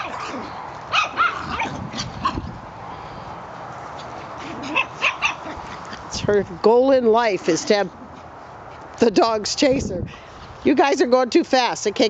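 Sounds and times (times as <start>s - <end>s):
small dogs yipping and barking: 0.0s - 2.6s, 3.9s - 6.1s.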